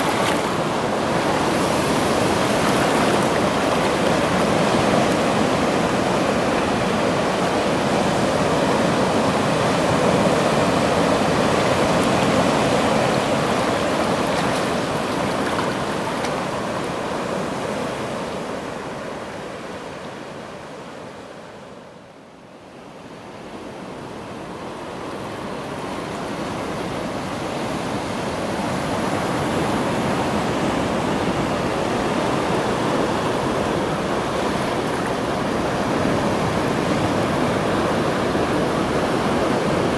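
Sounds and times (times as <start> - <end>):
surf breaking over rocks: 0.0 - 6.0.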